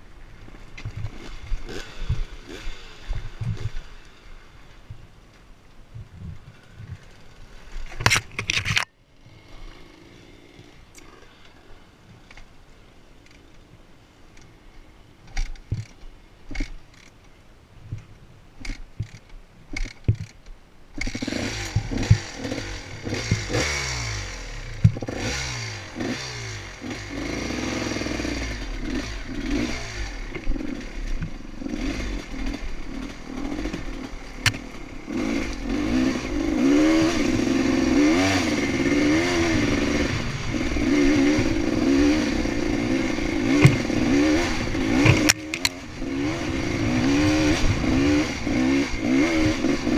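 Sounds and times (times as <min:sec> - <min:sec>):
dirt bike engine revving: 0:01.0 - 0:04.5, 0:09.2 - 0:11.4, 0:21.0 - 0:49.9
scattered clicks and knocks: 0:15.3 - 0:17.2, 0:18.0 - 0:22.3, 0:43.5 - 0:43.9.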